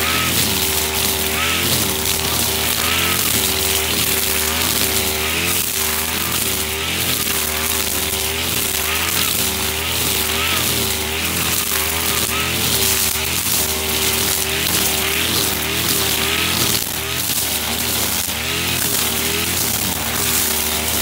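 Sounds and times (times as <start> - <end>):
brushcutter engine running: 0.0 - 21.0
whir of spinning trimmer line: 0.0 - 21.0.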